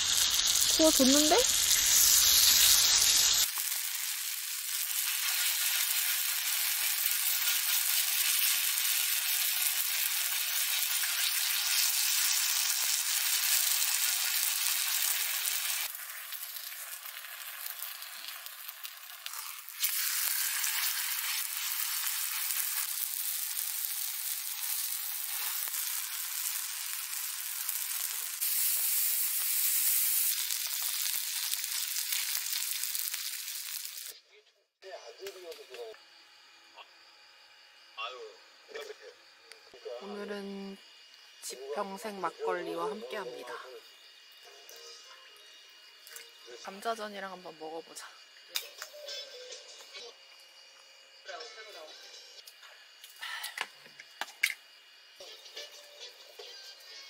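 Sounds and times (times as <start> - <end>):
meat sizzling on a pan: 0.0 - 34.2
pancakes sizzling in oil: 0.0 - 34.2.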